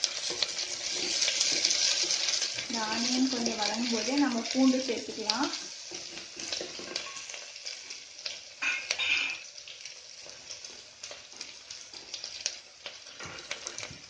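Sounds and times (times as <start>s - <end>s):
wooden spatula stirring: 0.0s - 8.4s
onions sizzling in hot oil: 0.0s - 14.0s.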